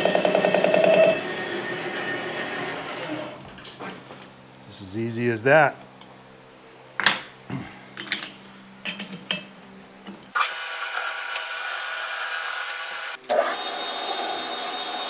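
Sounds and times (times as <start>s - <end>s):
lathe whining: 0.0s - 3.4s, 10.3s - 15.0s.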